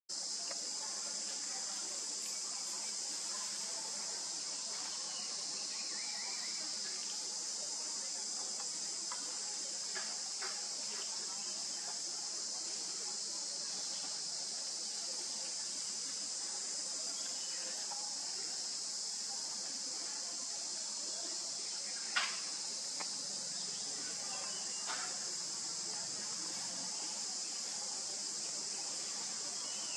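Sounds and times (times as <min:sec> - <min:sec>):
insect chorus droning: 0:00.1 - 0:29.9
faint clicks: 0:22.1 - 0:23.2.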